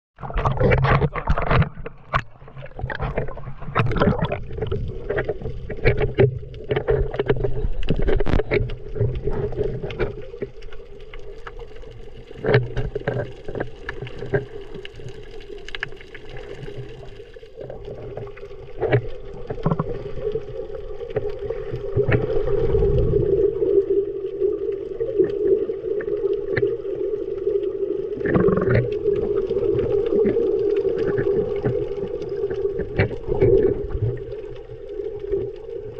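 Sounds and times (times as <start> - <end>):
clicks and bubble pops: 0.2 - 9.9, 17.6 - 20.2, 28.2 - 34.6
water sloshing and gurgling: 0.2 - 35.9.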